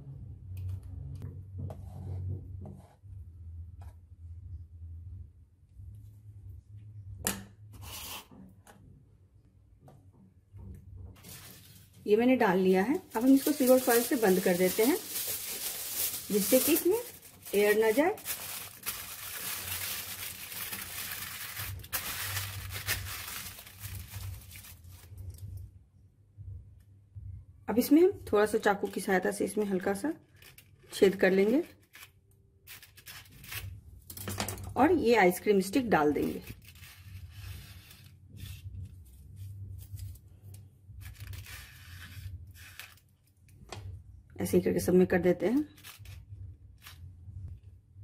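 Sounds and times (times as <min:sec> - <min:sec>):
aluminium foil crinkling: 0:11.2 - 0:12.0, 0:12.8 - 0:25.6, 0:29.7 - 0:33.8, 0:36.2 - 0:43.6, 0:45.6 - 0:47.1.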